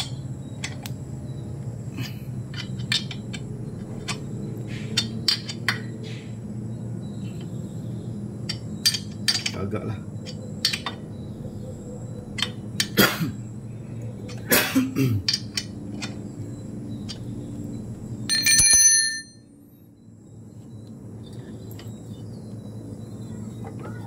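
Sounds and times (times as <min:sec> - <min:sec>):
bell-like metallic ring: 0:18.3 - 0:19.5.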